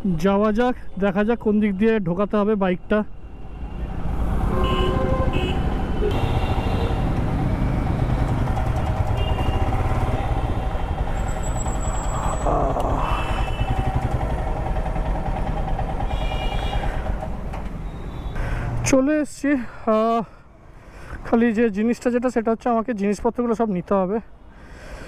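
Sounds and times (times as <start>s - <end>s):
car horn toots: 4.5s - 7.1s, 8.9s - 10.7s, 16.1s - 16.9s
motorcycle engine running: 6.1s - 17.2s.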